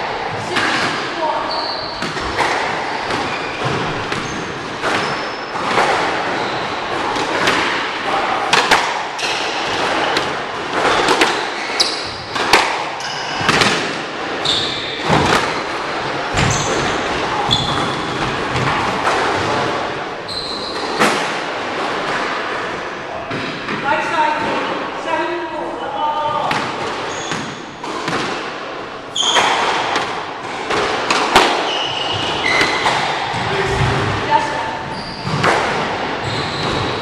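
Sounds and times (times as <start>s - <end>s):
squash ball hitting rackets and walls: 0.0s - 24.9s, 26.2s - 37.0s
shoes squeaking on wooden floor: 1.2s - 7.6s, 9.2s - 18.8s, 19.4s - 21.2s, 26.3s - 27.8s, 29.1s - 29.8s, 30.5s - 37.0s.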